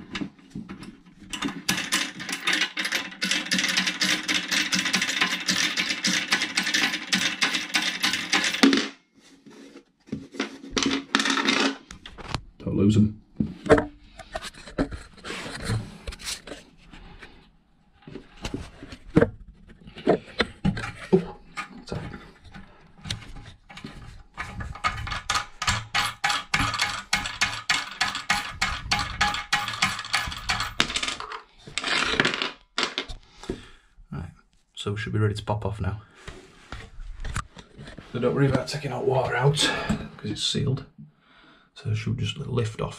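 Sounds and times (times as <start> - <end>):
metal clinks and scrapes: 1.3 - 8.8, 20.7 - 32.4.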